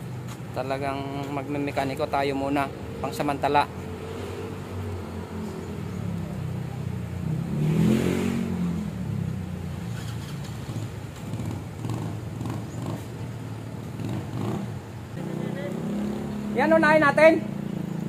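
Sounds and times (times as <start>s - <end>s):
vehicle engine revving: 3.9s - 18.0s.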